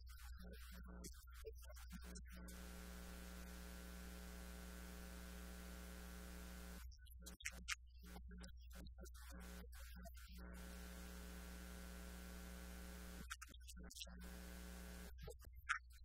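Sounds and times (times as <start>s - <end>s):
electrical mains hum: 2.4s - 6.8s, 10.4s - 13.3s, 14.1s - 15.2s.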